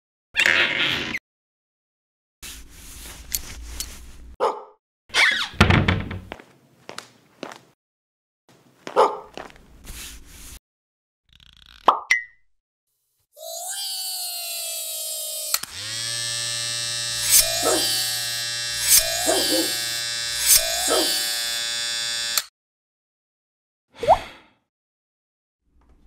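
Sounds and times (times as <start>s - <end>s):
electric hair clippers buzzing: 14.0s - 22.5s.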